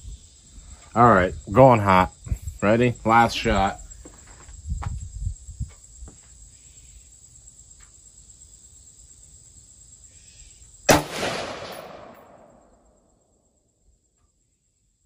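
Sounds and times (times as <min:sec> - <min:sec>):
rifle shot echoing: 0:10.9 - 0:12.9.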